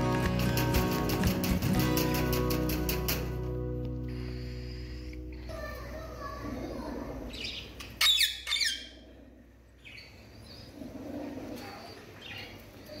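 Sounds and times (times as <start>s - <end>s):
parrots squawking: 4.2s - 9.1s.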